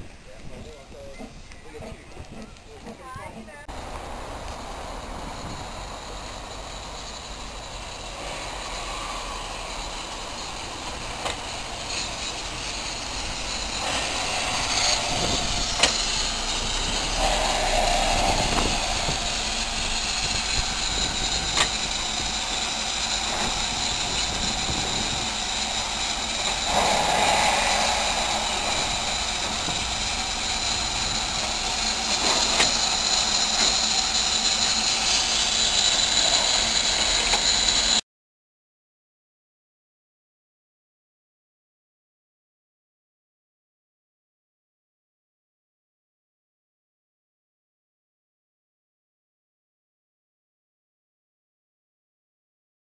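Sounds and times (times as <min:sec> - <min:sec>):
steam hissing: 0:00.0 - 0:38.0.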